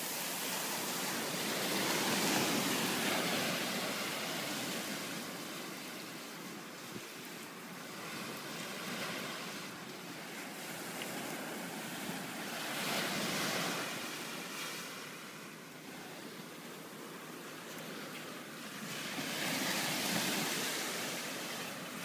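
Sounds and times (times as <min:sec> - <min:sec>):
sea surf washing onto beach: 0:00.0 - 0:22.0.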